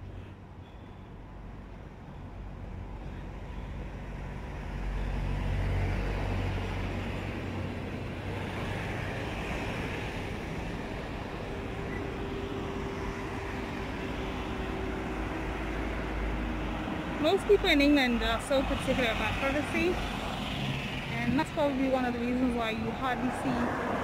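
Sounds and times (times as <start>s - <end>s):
engine steady tone: 0.0s - 5.8s, 10.2s - 20.2s
passing vehicle engine rumble: 0.0s - 24.0s
tyre and traffic noise: 0.0s - 24.0s.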